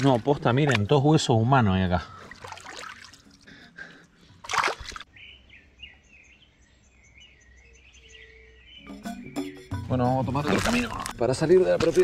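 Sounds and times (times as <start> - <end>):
bird chirping: 5.0 - 10.9.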